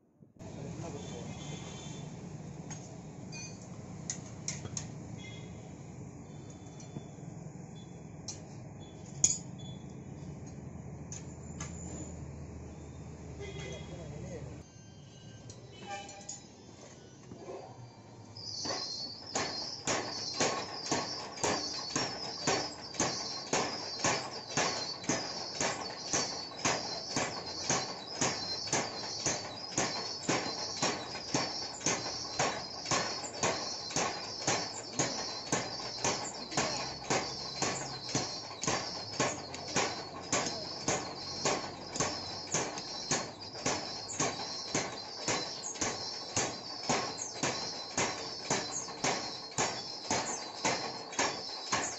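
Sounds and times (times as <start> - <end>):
power hammer striking hot steel: 18.4 - 51.9.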